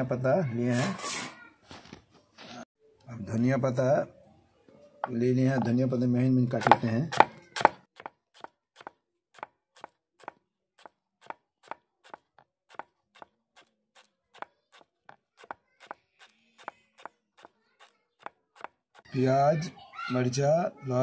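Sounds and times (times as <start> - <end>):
knife chopping on wooden board: 6.6 - 16.0, 16.6 - 19.1.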